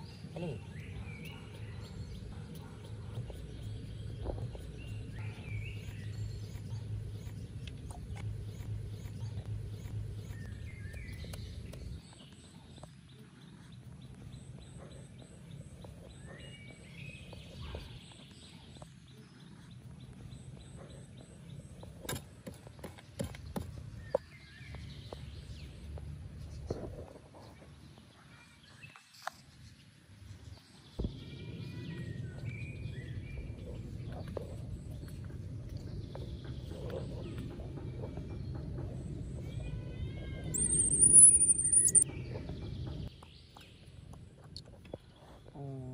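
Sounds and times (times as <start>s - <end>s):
low steady rumble: 0.0s - 12.7s
short high chirping calls: 40.5s - 42.0s.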